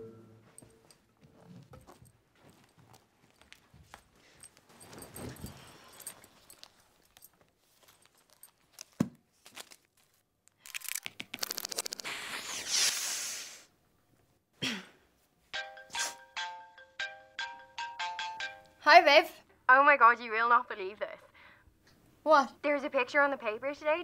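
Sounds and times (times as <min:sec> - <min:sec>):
paper rustling: 0:06.3 - 0:12.8
mobile phone ringtone: 0:15.6 - 0:18.8.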